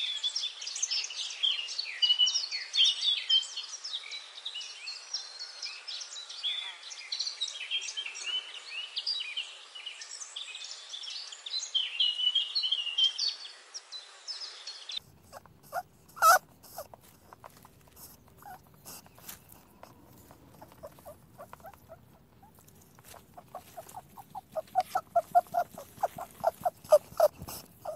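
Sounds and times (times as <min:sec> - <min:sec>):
small animals chirping: 0:15.0 - 0:27.9
short squeaks: 0:15.3 - 0:27.9.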